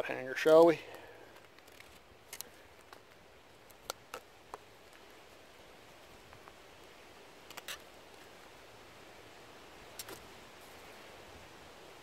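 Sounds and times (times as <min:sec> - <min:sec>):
knife scraping a stick: 0:07.5 - 0:07.9.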